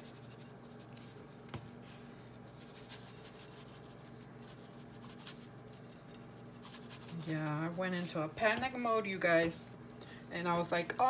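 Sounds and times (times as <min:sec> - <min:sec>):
seasoning shaker shaking: 0:00.0 - 0:01.2, 0:02.4 - 0:08.2
low steady hum: 0:00.0 - 0:11.0.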